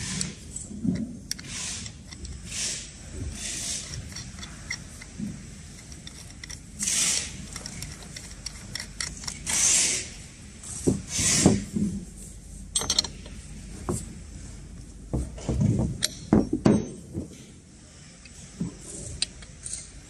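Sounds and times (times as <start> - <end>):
spanner scraping metal: 0.0 - 10.2, 19.0 - 20.0
spanner and bolt clinks and knocks: 3.8 - 9.7, 12.7 - 13.4, 15.2 - 17.4, 19.1 - 20.0.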